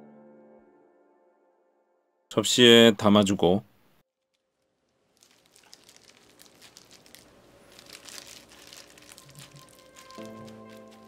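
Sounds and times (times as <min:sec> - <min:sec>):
plastic glove crinkling: 0:04.1 - 0:11.0.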